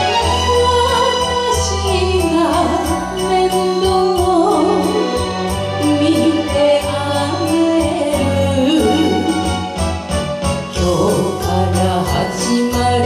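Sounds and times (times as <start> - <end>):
woman singing into a microphone: 0.0 - 9.6
light beat and backing accompaniment: 0.0 - 13.0.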